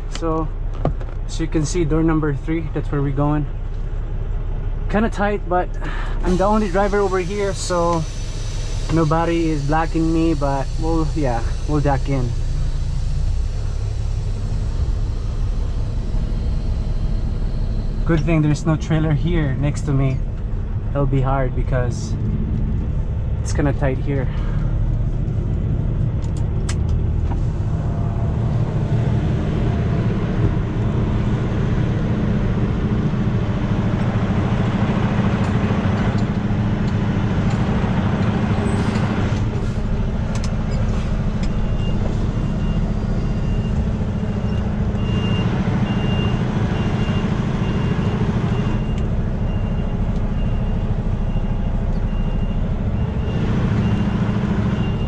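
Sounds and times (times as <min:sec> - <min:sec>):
diesel truck engine idling: 0:00.0 - 0:55.0
reversing beeper: 0:06.3 - 0:20.2, 0:40.7 - 0:55.0.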